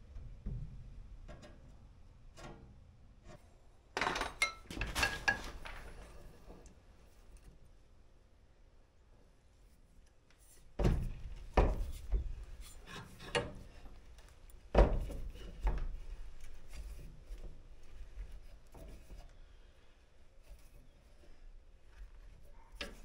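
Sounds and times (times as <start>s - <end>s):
rubbing on metal pipe: 10.4s - 14.2s, 14.9s - 19.6s.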